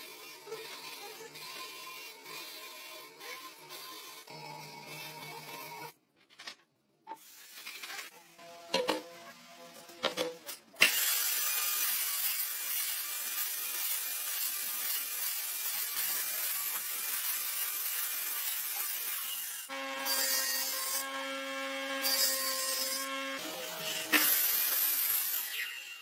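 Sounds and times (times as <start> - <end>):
miter saw cutting wood: 10.8 - 26.0.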